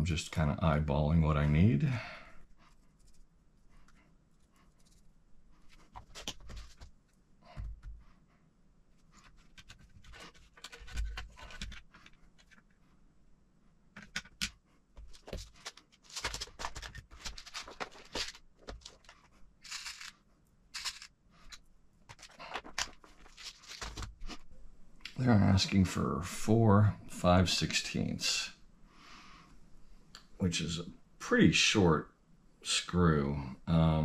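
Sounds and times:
small parts clicking and tapping: 14.0s - 24.0s
screws picked through in plastic box: 19.0s - 20.1s, 20.8s - 21.1s.

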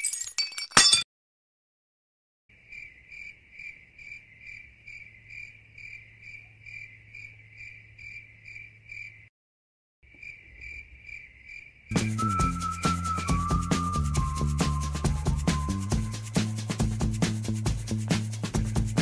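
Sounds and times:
cricket chirping: 2.5s - 9.3s, 10.1s - 12.2s.

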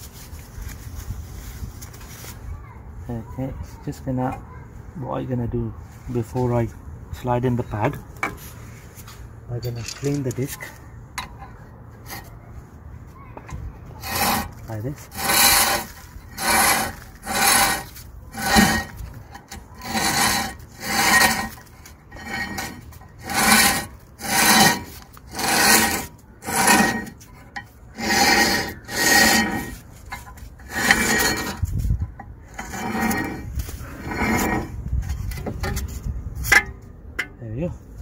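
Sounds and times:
screwdriver scraping metal: 9.6s - 12.3s, 14.0s - 36.8s.

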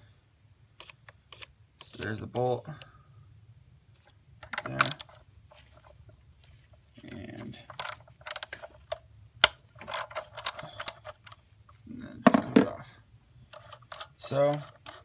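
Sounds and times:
ratchet wrench clicking: 4.5s - 5.1s, 7.7s - 8.5s.

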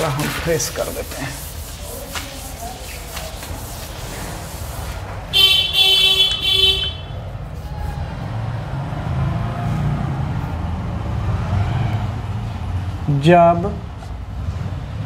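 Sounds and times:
low traffic rumble: 0.0s - 15.0s
vehicle horn honking: 5.3s - 7.2s.

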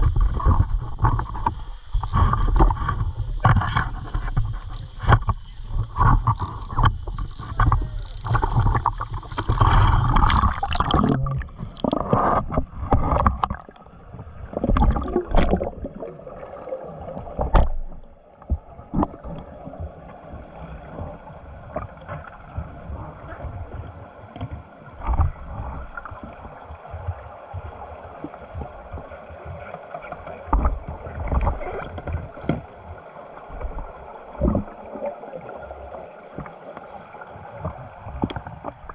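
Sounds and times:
sharp clicks underwater: 0.0s - 13.9s, 14.5s - 16.2s, 17.1s - 19.9s, 24.3s - 32.7s, 37.6s - 38.9s
muffled underwater sound: 0.0s - 38.9s
water splashing and sloshing: 0.0s - 38.9s.

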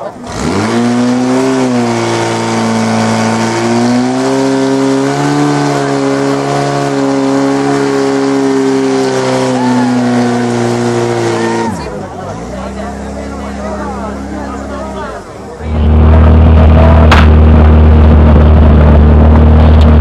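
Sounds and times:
pump engine running at high revs: 0.0s - 20.0s.

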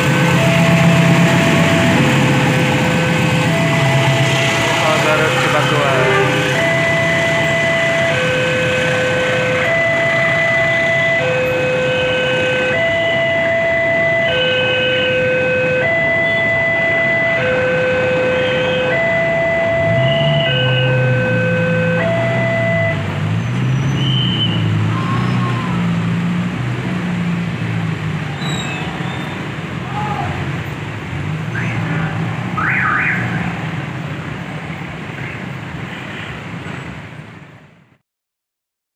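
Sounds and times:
train passing with rumble: 0.0s - 11.6s
two-tone level crossing alarm: 0.0s - 23.0s
motorcycle and car engines: 0.0s - 37.9s.

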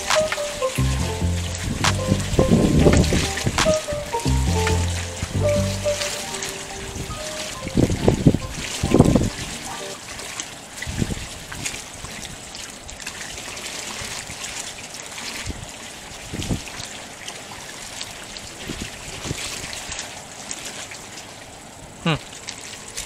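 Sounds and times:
water trickling and lapping: 4.7s - 23.0s.

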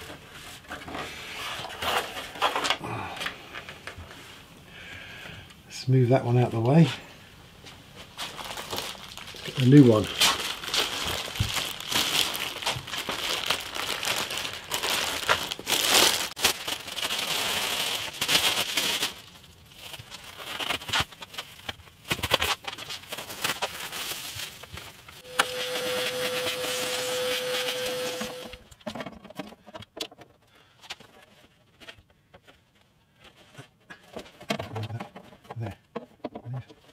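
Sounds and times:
plastic wrapping crinkling: 7.6s - 28.7s
steady hum with held tone: 25.2s - 28.7s.

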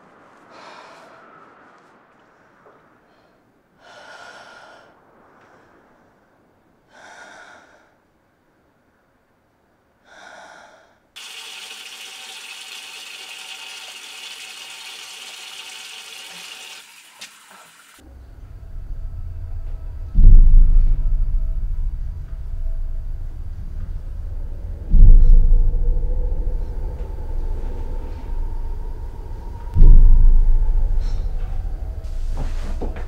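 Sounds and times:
low rumble: 0.0s - 9.9s, 18.0s - 33.0s
woman breathing heavily: 0.4s - 2.0s, 2.6s - 5.9s, 6.8s - 8.1s, 10.0s - 11.2s.

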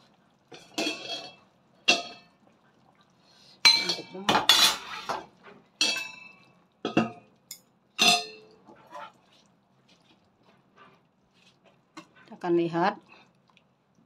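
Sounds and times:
metal utensil clinking on a pot: 0.5s - 2.4s, 3.6s - 5.2s, 5.8s - 9.1s.

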